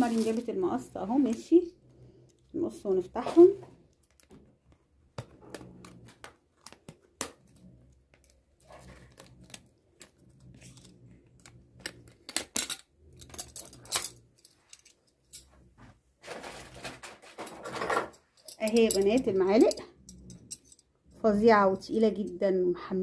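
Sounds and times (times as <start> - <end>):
metal spoons clinking: 18.1 - 20.9.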